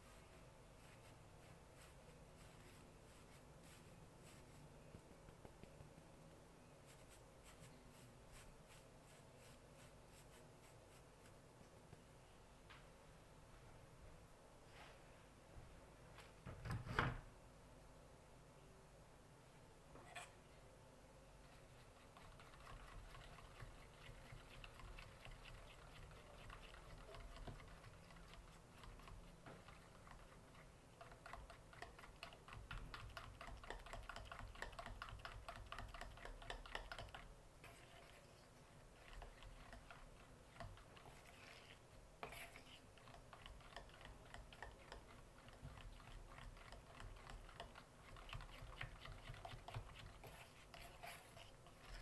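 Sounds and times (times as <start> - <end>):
fork scraping metal pan: 41.0 - 43.1.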